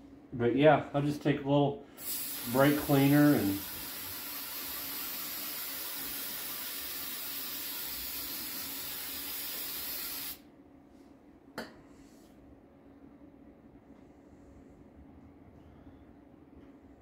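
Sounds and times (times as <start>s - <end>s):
aerosol can spraying hiss: 2.0s - 10.4s.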